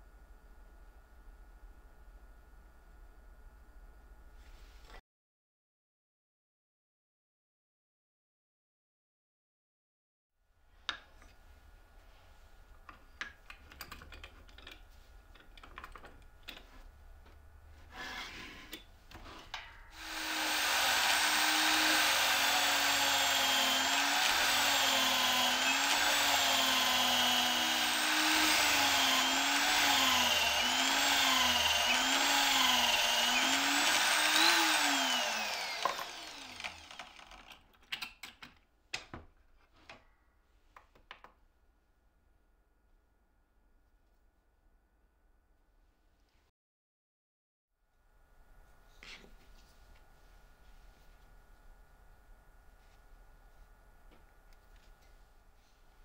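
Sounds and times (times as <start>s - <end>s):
electric drill boring into wood: 20.0s - 37.6s.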